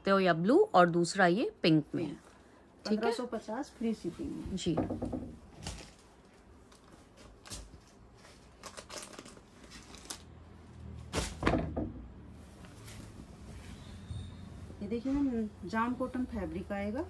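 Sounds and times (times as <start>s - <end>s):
clothes rustling: 12.3s - 14.1s.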